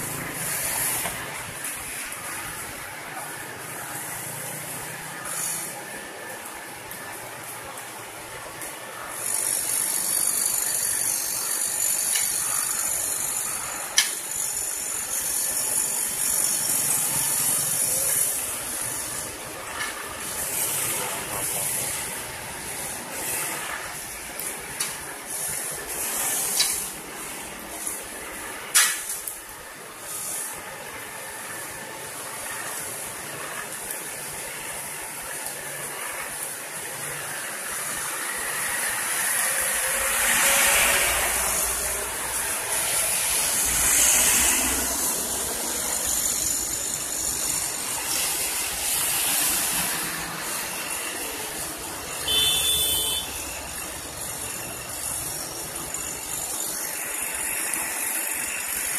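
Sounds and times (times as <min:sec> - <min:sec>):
road paving machinery running: 0:00.0 - 0:58.9
truck passing: 0:37.2 - 0:56.2.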